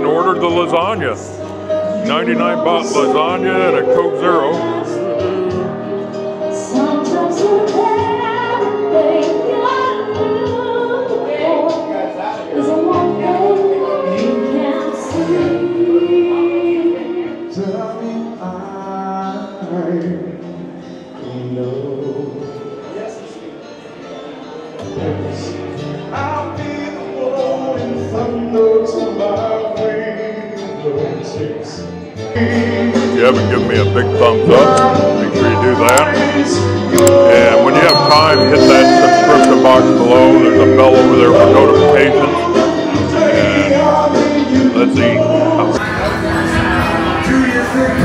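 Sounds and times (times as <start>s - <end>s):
live band playing: 0.0s - 17.7s, 23.9s - 48.0s
person singing: 1.7s - 20.5s, 32.2s - 48.0s
woman singing: 6.5s - 17.5s.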